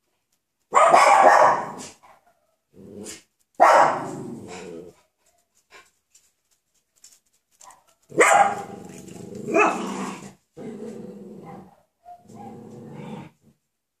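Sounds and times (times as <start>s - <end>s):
puppies barking: 8.2s - 8.7s
puppies growling: 8.6s - 11.7s.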